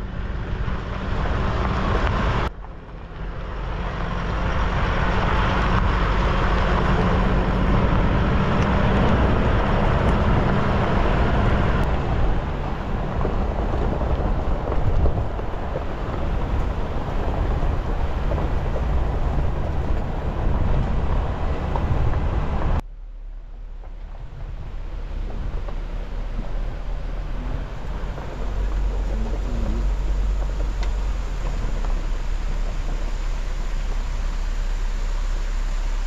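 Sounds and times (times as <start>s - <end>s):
low wind rumble on microphone: 0.0s - 36.0s
road and wind noise in vehicle: 0.0s - 36.0s.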